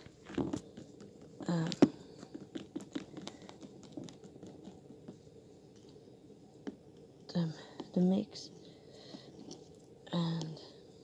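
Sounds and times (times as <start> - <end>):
small clicks and knocks: 0.0 - 6.0.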